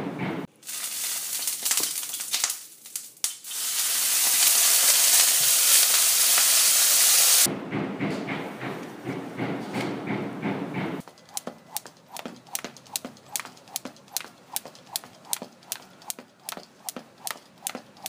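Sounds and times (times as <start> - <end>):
harsh crackling hiss: 0.5 - 7.5.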